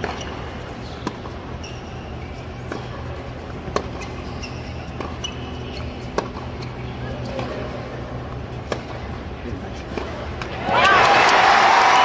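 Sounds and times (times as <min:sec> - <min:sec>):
shoe squeaks: 0:00.0 - 0:07.7
tennis ball struck by rackets: 0:01.0 - 0:01.4, 0:06.1 - 0:06.6, 0:08.6 - 0:09.0
murmur of stadium crowd: 0:06.8 - 0:12.0.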